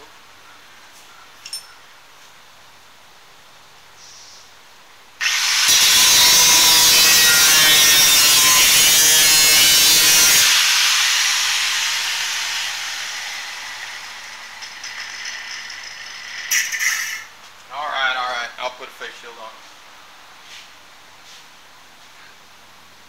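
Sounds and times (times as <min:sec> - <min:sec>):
angle grinder cutting steel: 0:05.2 - 0:17.4.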